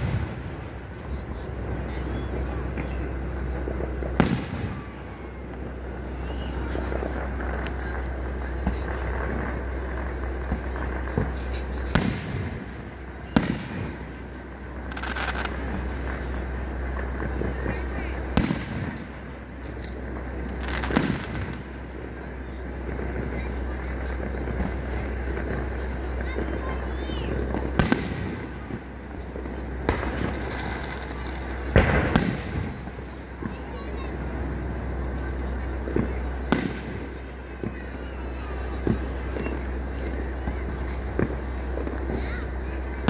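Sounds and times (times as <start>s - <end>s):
faint firework thumps: 0.0s - 14.1s, 14.7s - 22.1s, 22.8s - 43.0s
firework bangs echoing: 0.0s - 43.0s
rapid firework crackle: 0.0s - 43.0s
firework shells bursting: 2.4s - 17.6s, 18.2s - 22.0s.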